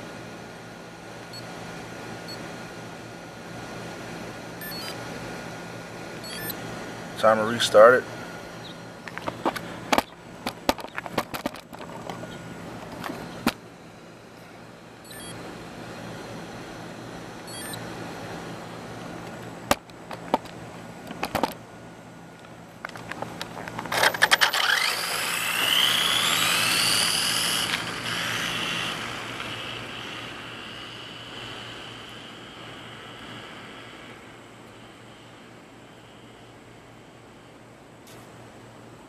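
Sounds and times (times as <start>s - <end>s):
rc car motor whine: 6.2s - 6.6s, 15.1s - 15.4s, 23.9s - 34.4s.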